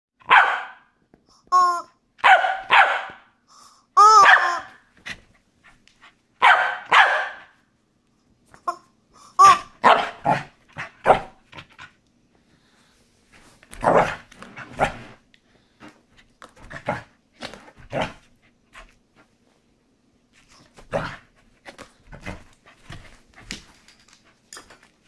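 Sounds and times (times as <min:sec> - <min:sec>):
dog barking: 0:00.2 - 0:00.9, 0:02.2 - 0:03.3, 0:04.2 - 0:04.7, 0:06.4 - 0:07.6, 0:09.8 - 0:11.3
rubber toy squeaks: 0:01.5 - 0:01.9, 0:04.0 - 0:04.8, 0:09.4 - 0:09.8.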